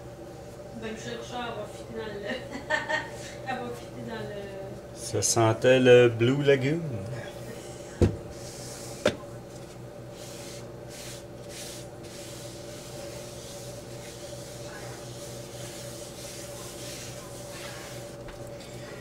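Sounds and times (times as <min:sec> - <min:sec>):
steady low hum: 0:00.0 - 0:19.0
cloth rubbing across counter: 0:09.6 - 0:18.6.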